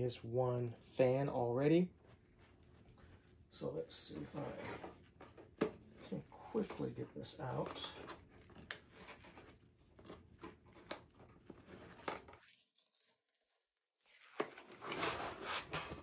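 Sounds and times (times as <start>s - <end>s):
cardboard scraping and rustling: 14.2s - 16.0s.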